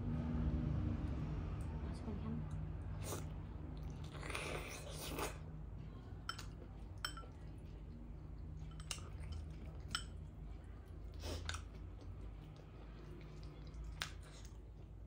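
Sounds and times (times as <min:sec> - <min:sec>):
clinks against a plate: 0:06.3 - 0:07.4.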